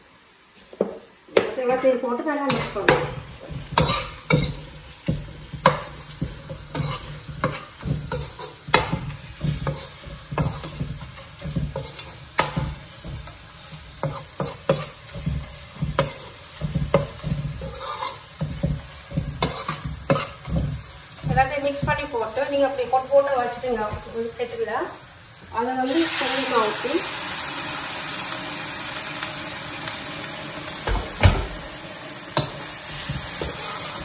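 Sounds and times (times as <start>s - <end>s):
food sizzling in a wok: 0.0s - 34.0s
metal spoon scraping a pan: 2.5s - 22.0s, 32.4s - 34.0s.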